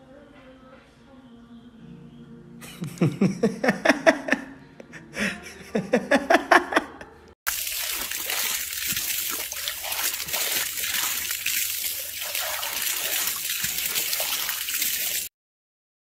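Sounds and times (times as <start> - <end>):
hose water jet splashing: 7.5 - 15.3.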